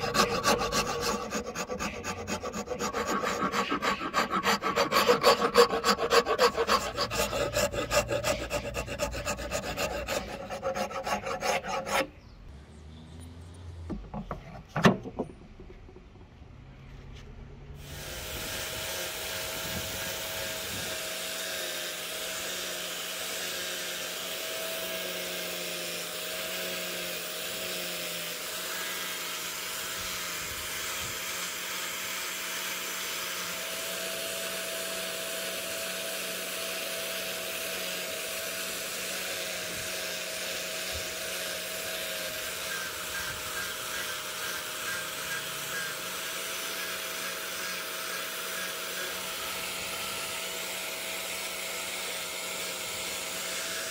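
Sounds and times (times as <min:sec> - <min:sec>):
sanding hiss on wood: 0:00.0 - 0:12.0
orbital sander motor whine: 0:00.0 - 0:12.2, 0:17.8 - 0:53.9.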